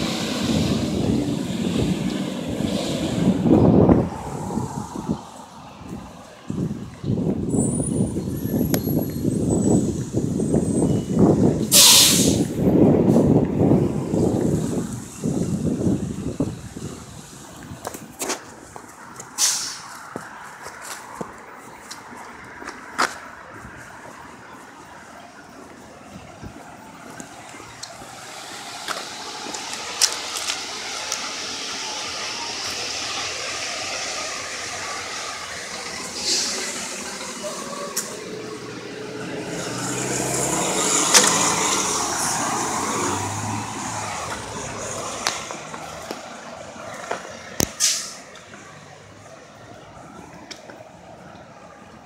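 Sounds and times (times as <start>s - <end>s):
bus diesel engine humming: 0.0s - 52.0s
car passing: 0.0s - 52.0s
short hiss: 11.7s - 12.4s, 19.4s - 19.9s, 47.8s - 48.2s.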